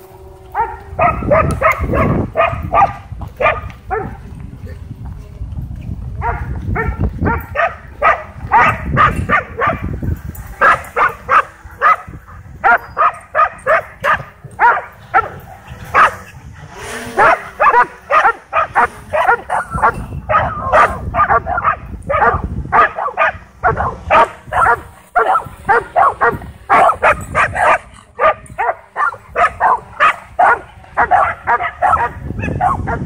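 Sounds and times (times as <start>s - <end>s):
dogs barking excitedly: 0.0s - 4.2s, 6.2s - 33.0s.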